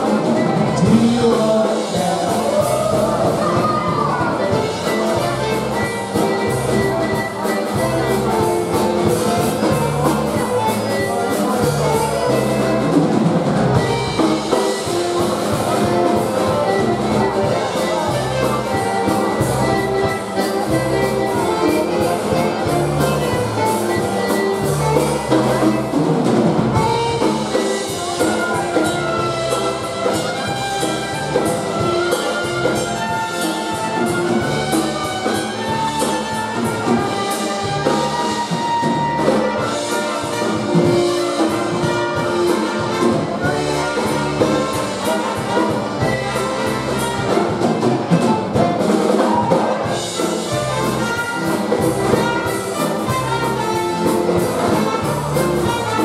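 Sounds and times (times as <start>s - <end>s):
live polka band playing: 0.0s - 56.0s.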